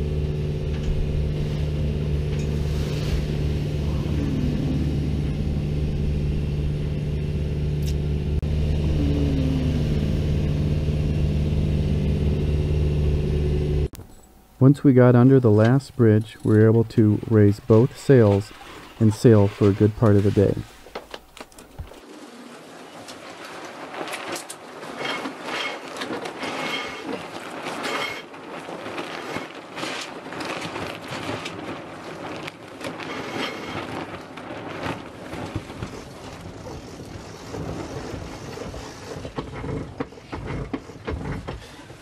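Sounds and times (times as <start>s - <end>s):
water rushing past sailboat: 22.0s - 41.0s.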